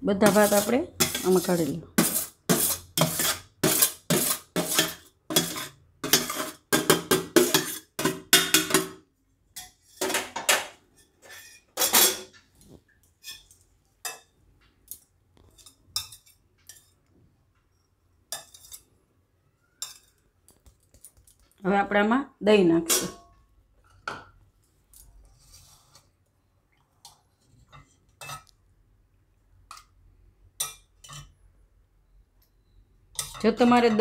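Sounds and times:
steel scraping and clinking on glass: 0:00.2 - 0:06.8, 0:07.4 - 0:08.5, 0:10.9 - 0:12.4, 0:13.2 - 0:17.1, 0:17.7 - 0:19.0, 0:19.7 - 0:20.2, 0:30.6 - 0:31.4, 0:33.1 - 0:34.0.

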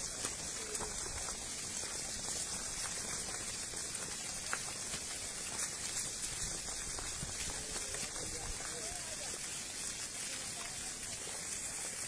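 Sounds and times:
stones and gravel clattering down: 0:00.0 - 0:09.1.

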